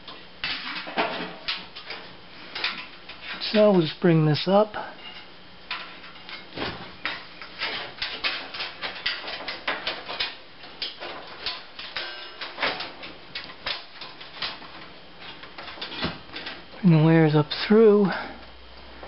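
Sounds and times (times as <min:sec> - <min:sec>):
clicks knocks and scrapes of wires: 0:05.1 - 0:16.7.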